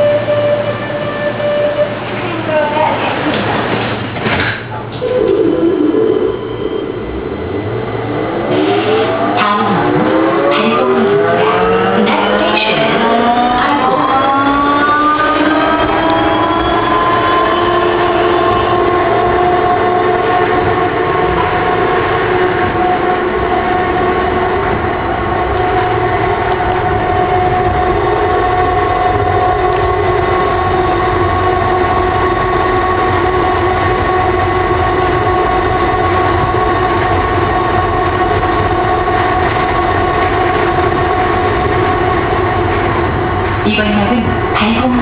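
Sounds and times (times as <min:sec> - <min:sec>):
train running gear rumble: 0:00.0 - 0:10.8, 0:11.4 - 0:45.0
steady electric whine: 0:05.0 - 0:45.0.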